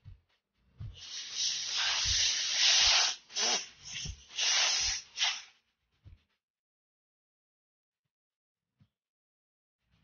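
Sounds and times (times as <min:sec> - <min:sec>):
pressurised spray hissing: 0:01.0 - 0:05.5.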